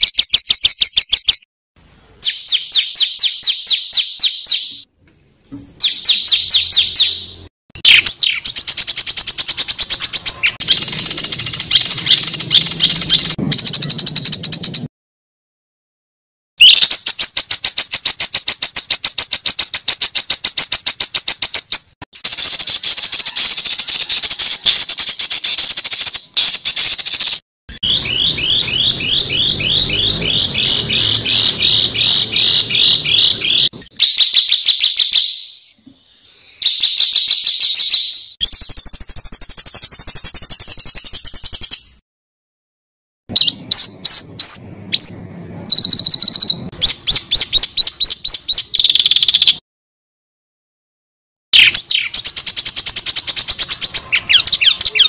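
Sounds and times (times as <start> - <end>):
songbird harsh repeated notes: 5.6 - 14.9, 16.6 - 35.7.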